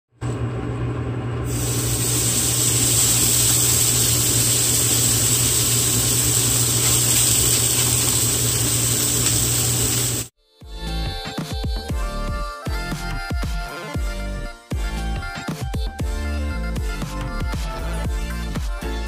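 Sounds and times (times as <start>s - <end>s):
steak sizzling in a frying pan: 1.5s - 10.3s.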